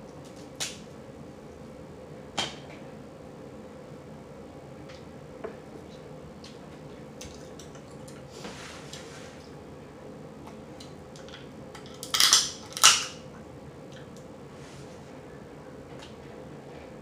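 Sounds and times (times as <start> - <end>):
faint steady hum: 0.0 - 17.0
crab shell cracking: 11.9 - 13.2.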